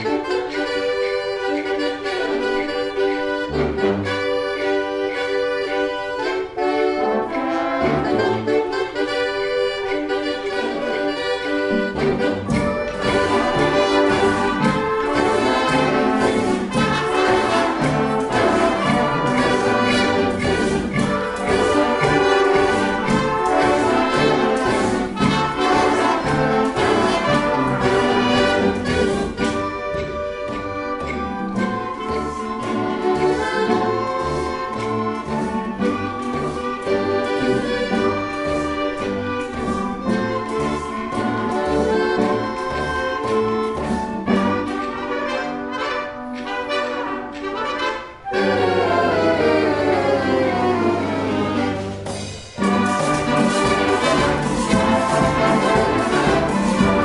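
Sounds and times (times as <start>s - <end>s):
concert band playing: 0.0s - 57.0s
percussion beat: 10.5s - 46.2s, 51.5s - 57.0s.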